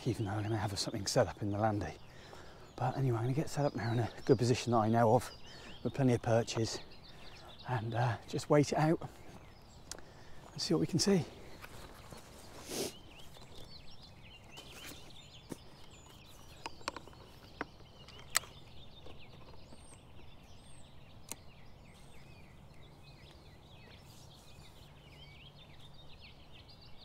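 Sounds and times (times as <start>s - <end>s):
birds chirping and trilling: 0.0s - 27.0s
rustle of handling: 10.3s - 20.3s, 21.9s - 25.9s
camera gear clicks and knocks: 14.6s - 20.4s.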